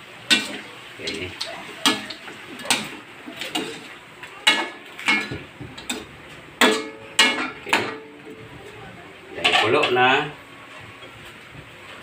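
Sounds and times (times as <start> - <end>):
metal spatula clanking in wok: 1.8 - 3.8, 4.4 - 8.4.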